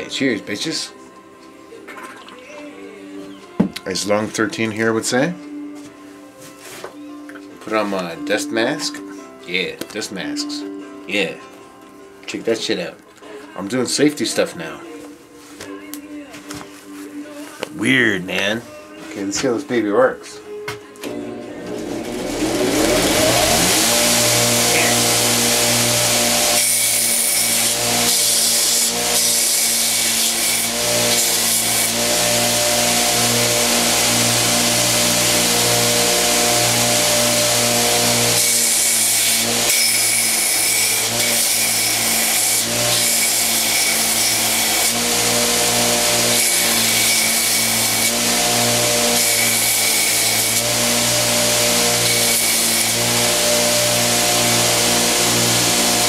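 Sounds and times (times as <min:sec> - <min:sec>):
belt grinder motor hum: 0:21.0 - 0:56.0
grinder belt hissing on handle: 0:21.9 - 0:56.0.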